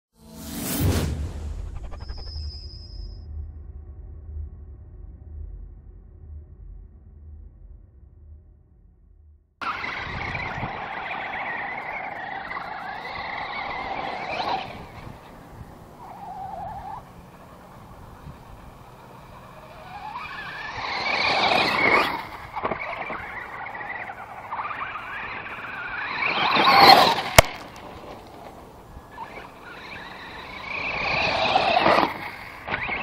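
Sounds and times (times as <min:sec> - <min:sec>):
electric motor whine: 0:09.6 - 0:33.0
tires on gravel: 0:09.6 - 0:33.0.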